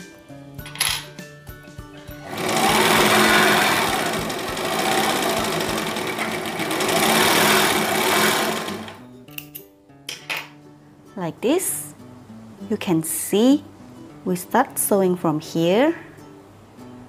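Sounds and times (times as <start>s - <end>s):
overlock sewing machine running: 2.2s - 9.0s.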